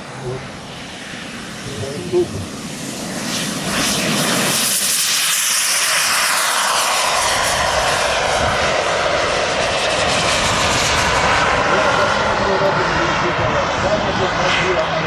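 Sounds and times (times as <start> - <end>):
model jet turbine whine: 0.0 - 15.0.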